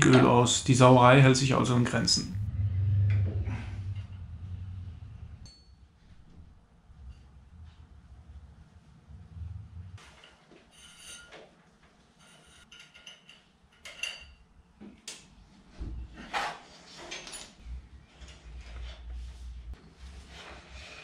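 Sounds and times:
metallic clinks of hose fittings: 12.7s - 14.4s.

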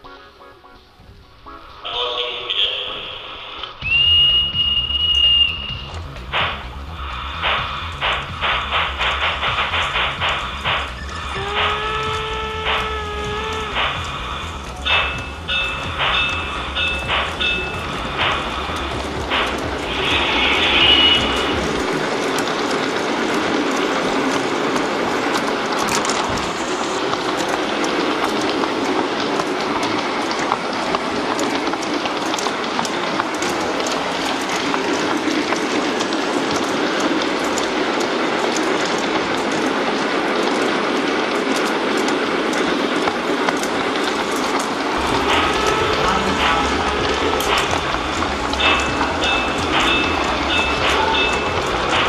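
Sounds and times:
wheels clicking over rails: 3.6s - 52.0s
model train motor whirring: 6.0s - 28.6s.

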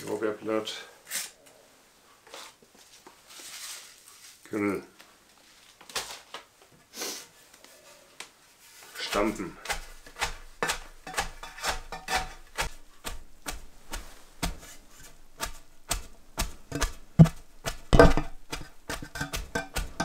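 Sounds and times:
wooden batten thudding on cabbage: 9.0s - 20.0s.

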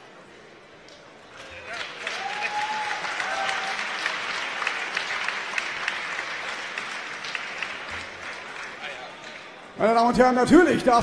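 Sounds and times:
crowd applauding: 1.3s - 9.8s.

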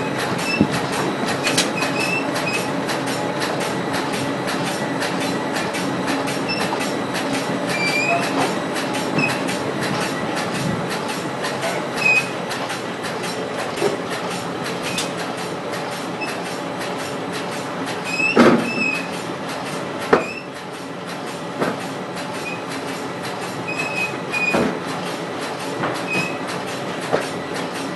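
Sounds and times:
machine belts and rollers clattering: 0.0s - 27.9s
short high squeaks: 7.7s - 8.4s, 12.0s - 12.3s.

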